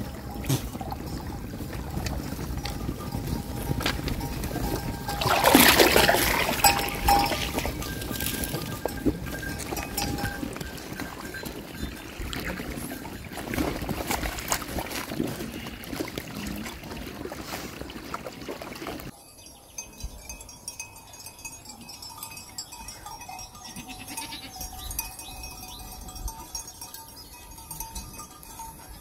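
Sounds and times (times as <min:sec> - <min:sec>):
sheep lapping and splashing water: 0:00.0 - 0:19.2.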